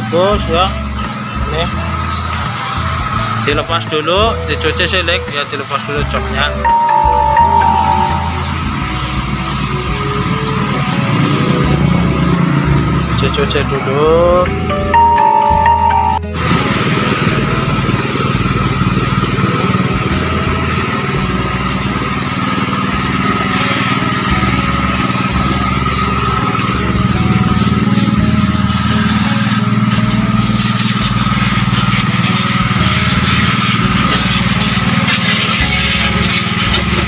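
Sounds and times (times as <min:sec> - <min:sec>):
pressure washer whining: 0:00.0 - 0:37.0
water jet hissing: 0:27.2 - 0:37.0.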